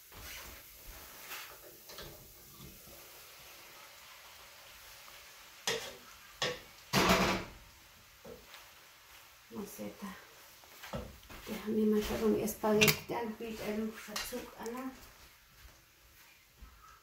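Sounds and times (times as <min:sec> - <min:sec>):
faint sizzle: 0:00.0 - 0:17.0
utensils knocking on pan: 0:12.7 - 0:13.1.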